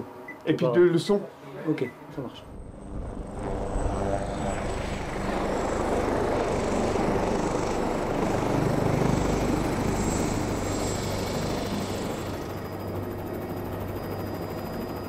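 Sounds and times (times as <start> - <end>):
helicopter rotor beat: 2.4 - 15.0.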